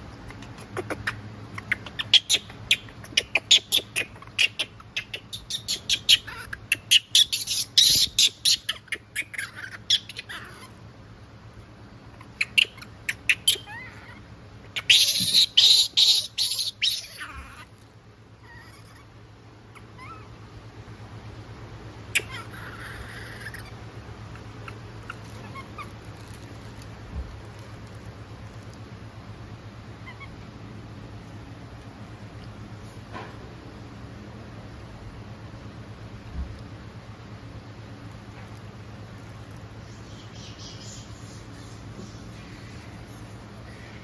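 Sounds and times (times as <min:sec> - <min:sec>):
monkeys screeching: 0:00.2 - 0:10.8, 0:12.1 - 0:17.8, 0:18.4 - 0:19.1, 0:19.7 - 0:20.4, 0:22.1 - 0:27.0, 0:30.0 - 0:30.4.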